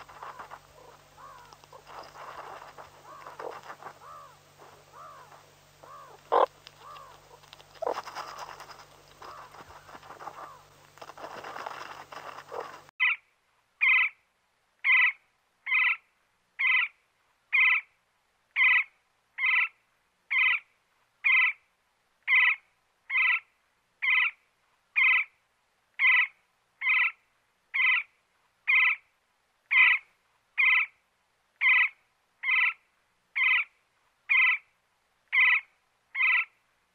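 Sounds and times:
scratching in dry soil: 0:00.0 - 0:13.0
meerkats calling: 0:00.0 - 0:13.2
woodpecker nestlings begging calls: 0:00.0 - 0:13.2, 0:36.2 - 0:36.5.

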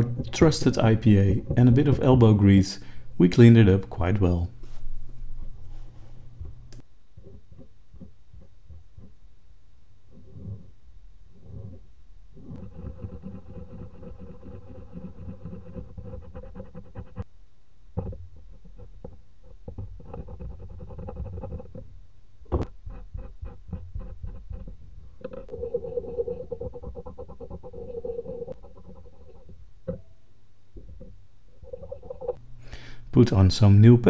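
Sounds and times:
thermal paste being scraped: 0:12.4 - 0:17.2, 0:22.6 - 0:29.5.

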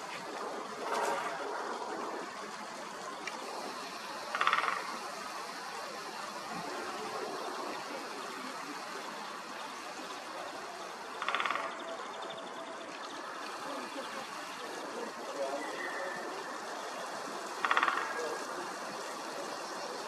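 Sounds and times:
background hiss: 0:00.0 - 0:20.0
woodpecker drumming: 0:04.2 - 0:05.4, 0:10.6 - 0:13.4, 0:17.3 - 0:18.5.

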